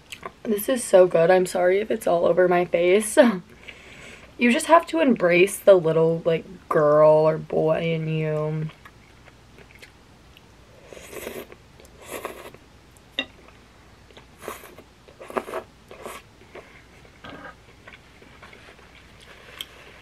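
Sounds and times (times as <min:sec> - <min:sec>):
chewing: 0:08.7 - 0:10.5
slurping noodles: 0:10.9 - 0:12.6.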